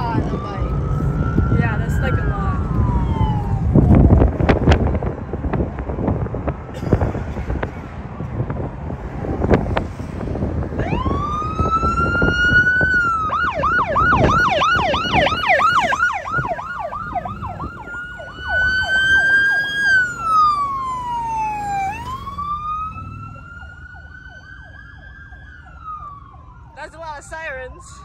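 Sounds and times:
police siren wailing and yelping: 0.0s - 4.2s, 10.7s - 28.0s
wind buffeting: 0.0s - 26.2s
road rumble: 0.0s - 28.0s.

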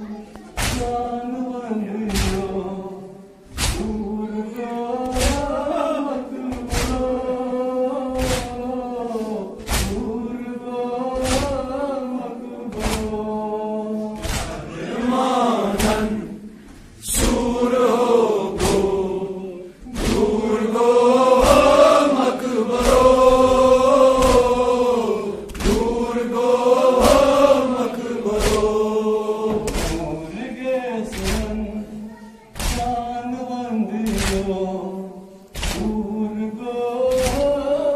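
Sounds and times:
hands slapping on chests: 0.6s - 1.0s, 2.1s - 2.6s, 3.5s - 4.0s, 5.0s - 5.6s, 6.5s - 7.2s, 8.1s - 8.7s, 9.6s - 10.1s, 11.2s - 11.8s, 12.7s - 13.2s, 14.2s - 15.0s, 15.7s - 16.2s, 18.5s - 19.0s, 19.8s - 26.2s, 26.8s - 28.8s, 29.5s - 30.2s, 31.1s - 31.7s, 32.6s - 33.0s, 34.0s - 34.6s, 35.5s - 36.0s, 37.1s - 37.6s
man chanting into a microphone: 0.7s - 16.4s, 29.4s - 37.9s
crowd of men chanting: 3.5s - 35.0s.

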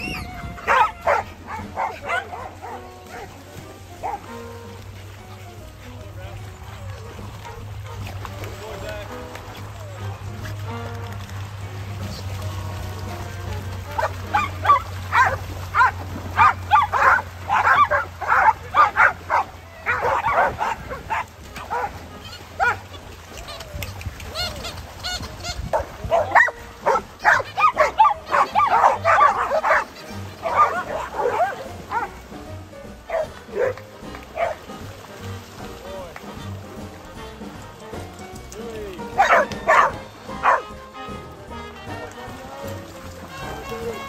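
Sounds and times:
background music with low beat: 0.0s - 25.0s, 25.8s - 44.0s
dog barking: 0.6s - 3.4s, 4.0s - 4.3s, 14.0s - 22.0s, 22.6s - 22.8s, 25.7s - 32.2s, 33.1s - 33.8s, 34.4s - 34.6s, 39.2s - 40.7s.

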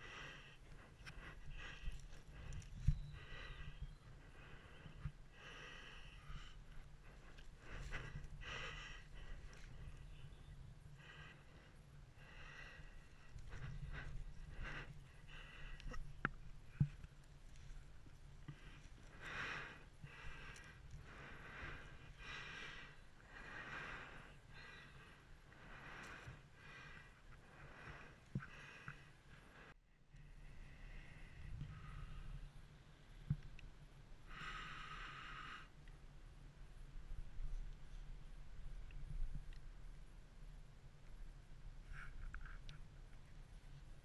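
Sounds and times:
person breathing close up: 0.0s - 10.2s, 10.9s - 32.5s, 34.2s - 35.9s
faint low rumble: 0.0s - 44.0s.

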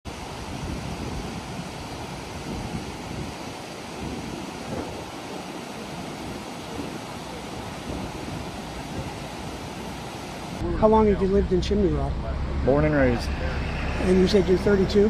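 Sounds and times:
river rushing over rocks: 0.1s - 10.6s
wind noise on microphone: 0.1s - 10.6s.

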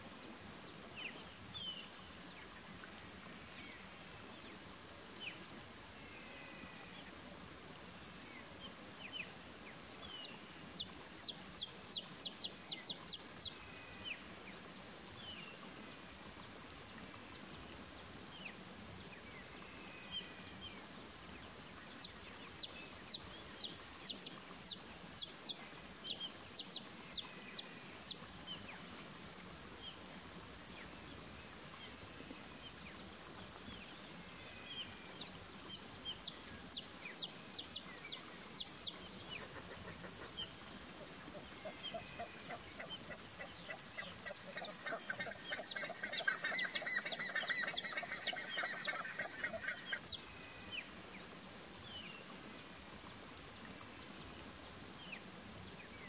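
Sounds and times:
insect drone: 0.0s - 56.0s.

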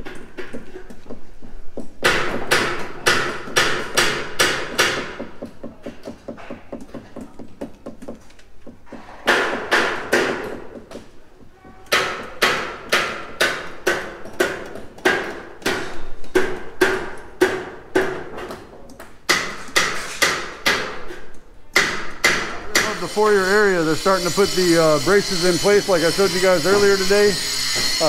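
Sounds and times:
hammer striking steel: 21.8s - 28.0s.

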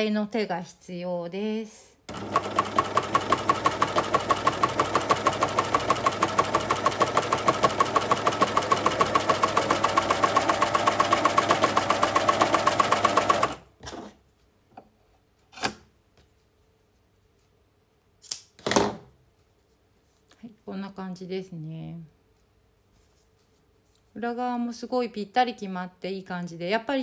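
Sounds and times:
sewing machine stitching: 2.1s - 14.1s
scissor snip: 18.2s - 18.5s.

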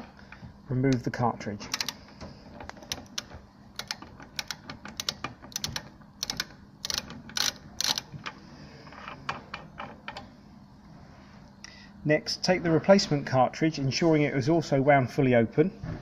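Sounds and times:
ratchet clicking: 1.7s - 2.0s, 2.6s - 8.4s.

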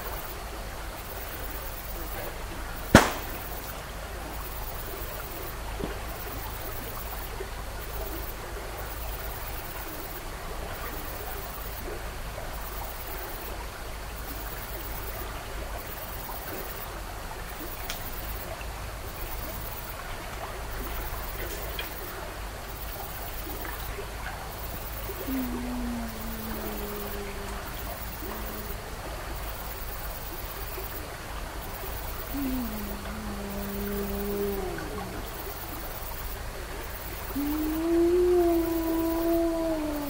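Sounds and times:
faint click: 17.8s - 18.1s
low hum: 25.1s - 29.3s, 32.3s - 36.0s, 37.3s - 40.0s.

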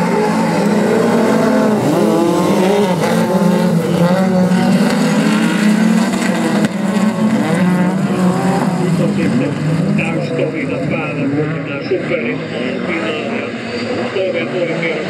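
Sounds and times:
race car engines revving: 0.0s - 15.0s.

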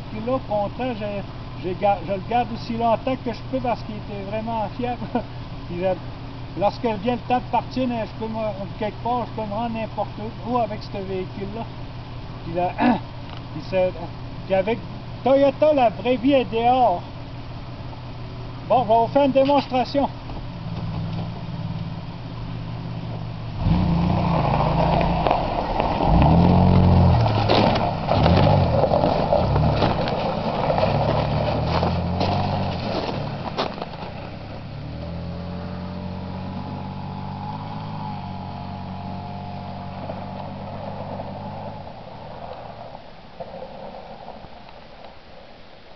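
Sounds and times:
truck engine revving: 20.6s - 43.0s.

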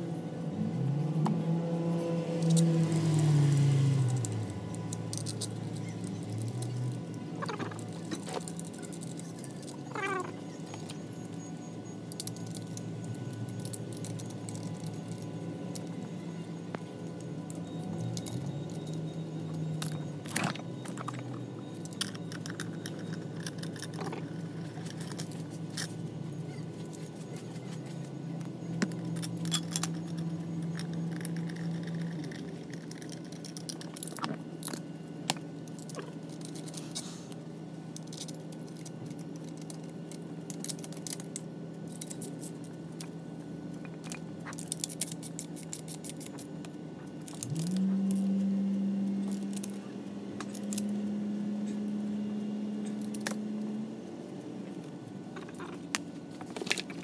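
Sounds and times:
steady low hum: 0.0s - 57.0s
metallic clicks and scrapes of tools: 2.4s - 16.1s, 17.0s - 37.4s, 43.8s - 48.4s.

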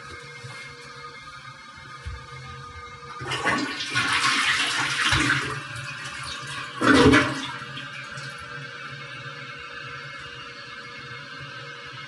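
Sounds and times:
toilet flushing: 0.0s - 12.0s.

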